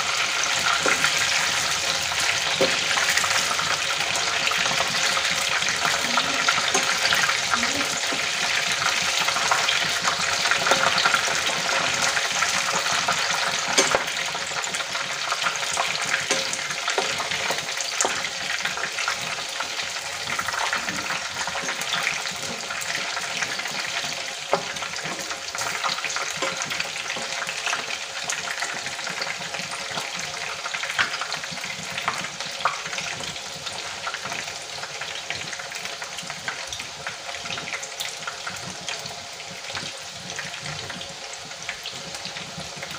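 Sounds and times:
food deep-frying in oil: 0.0 - 42.9
metal spoon clinking and scraping: 13.7 - 14.1.

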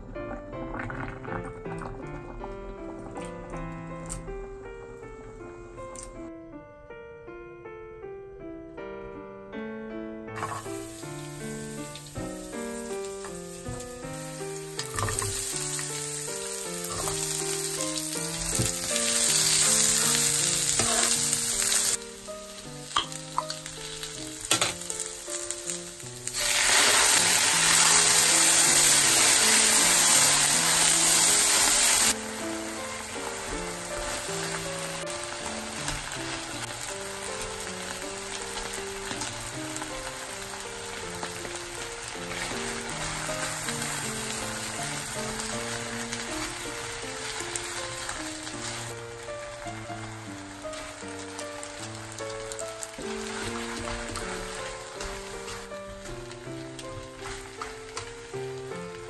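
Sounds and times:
soft background music: 0.0 - 59.0
sauce sizzling in a frying pan: 10.4 - 59.0.

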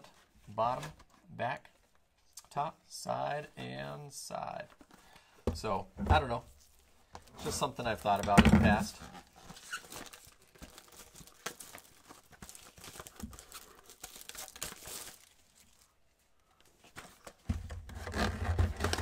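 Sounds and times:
cardboard and wrapping rustling: 4.6 - 19.0.

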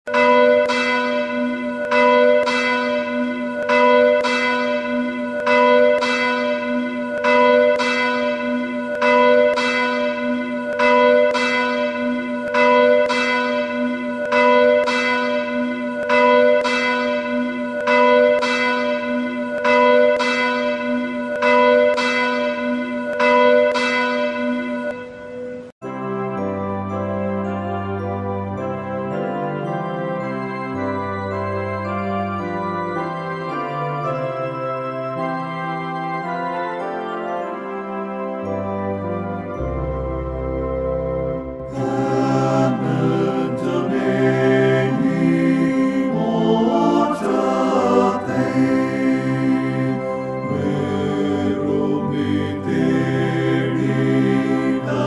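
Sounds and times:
church bell tolling: 0.1 - 55.0.

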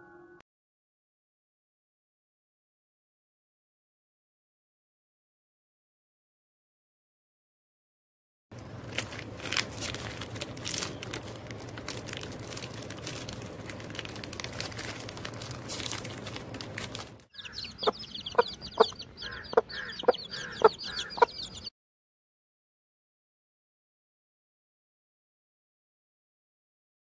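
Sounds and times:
foil wrapper crinkling: 8.6 - 17.3
hens clucking: 17.4 - 21.7
high chirping twitter: 17.4 - 21.7.

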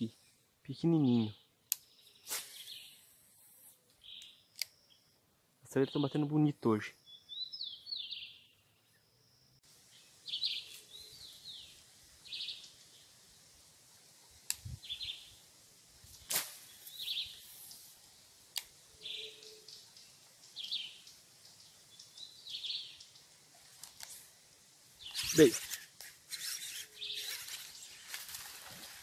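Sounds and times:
bird chirping: 0.7 - 5.2, 5.8 - 13.2, 14.8 - 15.4, 16.7 - 17.9, 18.9 - 24.1, 25.0 - 28.8.

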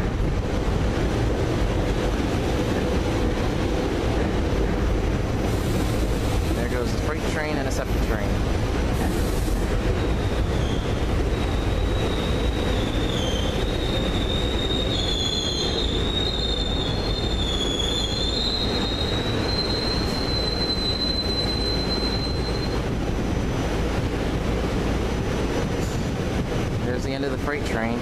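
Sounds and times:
train wheels squealing on rail: 9.0 - 23.4, 25.8 - 26.2.

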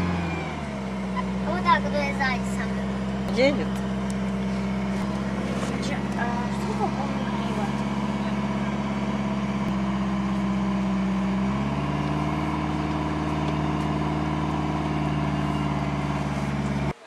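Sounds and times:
car engine driving on sand: 0.0 - 17.0.

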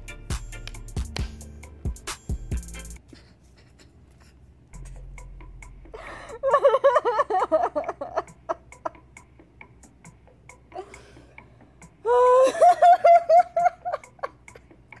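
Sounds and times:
young woman giggling: 3.0 - 5.0, 6.0 - 9.0, 12.1 - 15.0.

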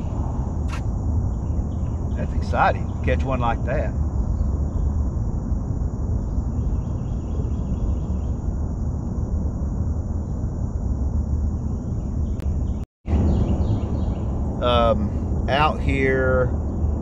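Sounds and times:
faint cricket-like chirps: 0.0 - 16.9
low boat rumble: 2.0 - 4.1, 13.1 - 17.0.

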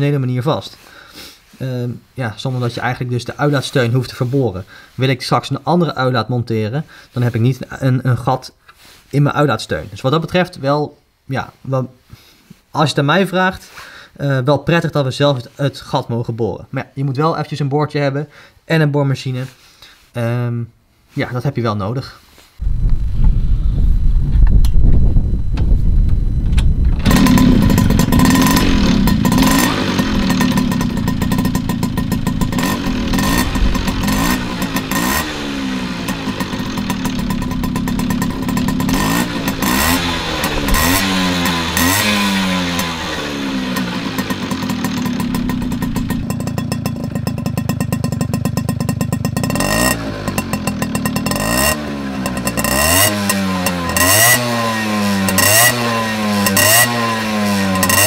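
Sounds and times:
moped engine revving: 22.6 - 58.0.

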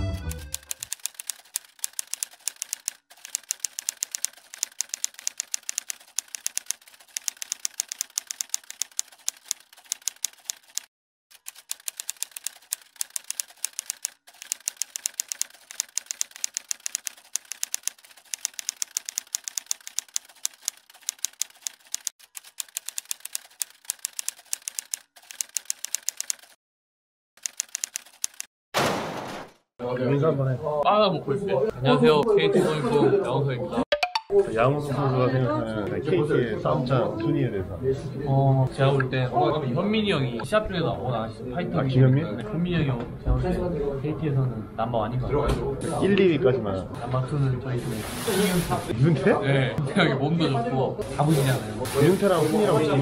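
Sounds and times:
typewriter key clicks: 0.4 - 26.6, 27.4 - 28.5.

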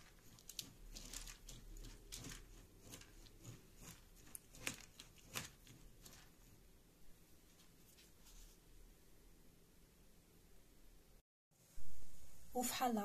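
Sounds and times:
metal spoon stirring rice in bowl: 0.0 - 6.7.

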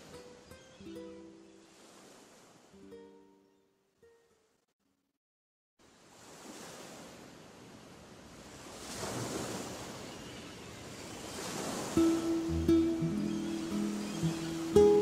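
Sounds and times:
sea waves washing in: 0.0 - 3.0, 5.8 - 15.0
plucked guitar notes: 12.0 - 15.0.

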